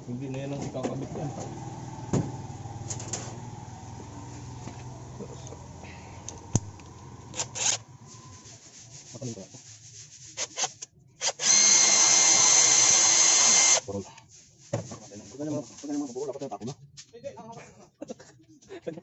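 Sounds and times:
cordless drill whining: 6.2s - 7.8s, 11.2s - 13.8s.

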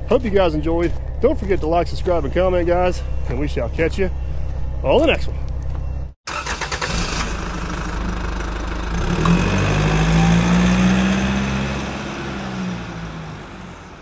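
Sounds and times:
motor running and revving: 8.9s - 13.3s.

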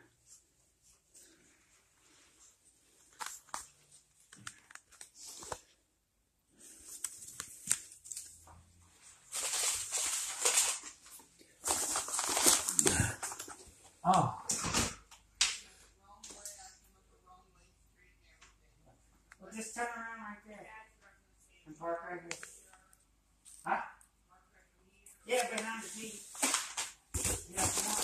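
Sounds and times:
packing peanuts rustling: 9.2s - 13.6s, 25.3s - 28.0s.

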